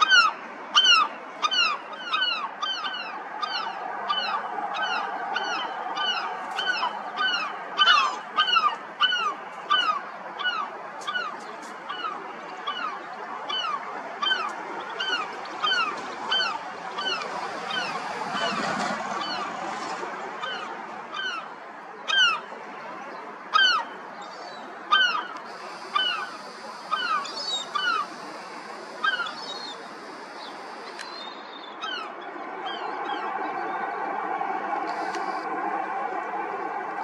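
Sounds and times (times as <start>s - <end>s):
birds calling: 23.5s - 32.1s
steady background hiss: 25.2s - 31.5s.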